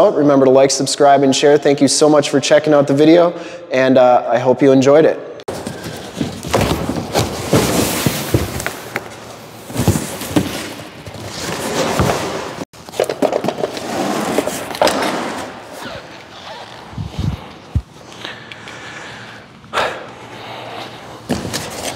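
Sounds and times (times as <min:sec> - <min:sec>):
box thumps and knocks: 0:05.5 - 0:09.1, 0:09.7 - 0:10.8
rustling of packed contents: 0:05.5 - 0:14.6
cardboard box scraping on tile: 0:09.8 - 0:12.6.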